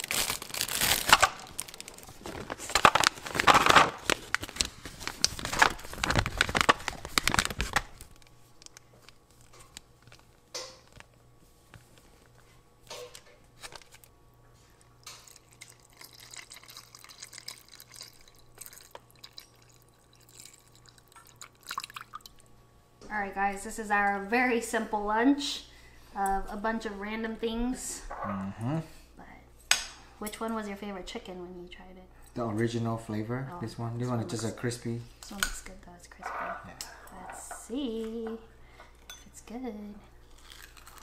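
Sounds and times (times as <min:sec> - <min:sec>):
plastic packets crinkling: 0:00.0 - 0:10.3, 0:13.6 - 0:14.1
faint steady hum: 0:00.0 - 0:41.0.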